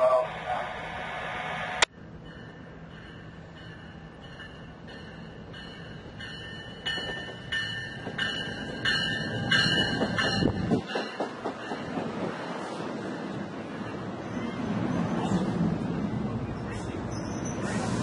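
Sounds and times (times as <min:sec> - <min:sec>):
train wheels rumbling on rails: 0:01.7 - 0:18.0
train bell ringing: 0:02.2 - 0:12.0.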